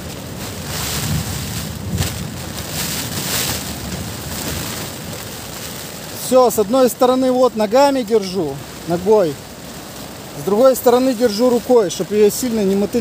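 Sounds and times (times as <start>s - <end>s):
tent walls flapping: 0.0s - 6.4s
wind rumbling on microphone: 0.0s - 7.2s
rain lashing tent fabric: 0.0s - 13.0s.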